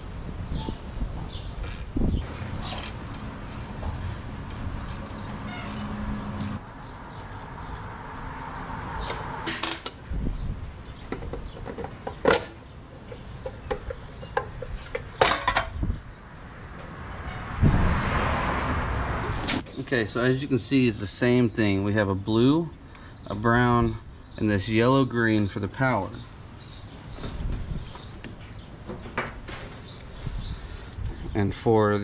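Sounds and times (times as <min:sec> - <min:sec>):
metal clicks clanks and knocks: 0:11.1 - 0:15.8.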